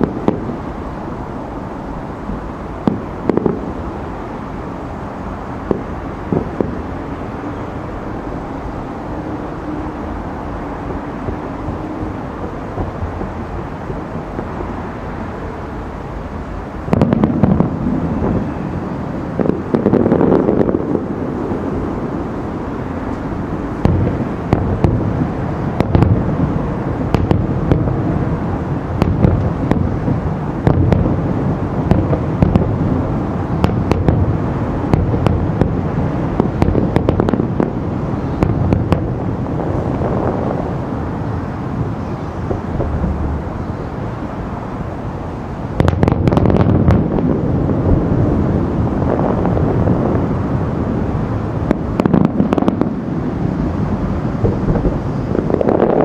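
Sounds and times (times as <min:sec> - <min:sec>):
low background rumble: 0:00.0 - 0:56.0
deep firework booms: 0:02.8 - 0:03.8, 0:16.9 - 0:21.4, 0:23.8 - 0:40.7, 0:41.7 - 0:44.1, 0:45.7 - 0:53.0.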